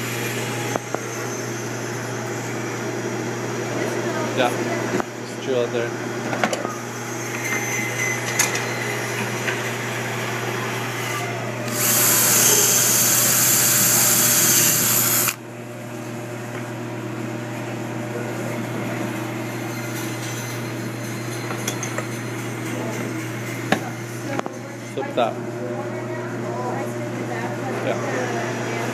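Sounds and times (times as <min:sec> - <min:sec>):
cordless drill driving screw into wood: 0:11.7 - 0:15.4.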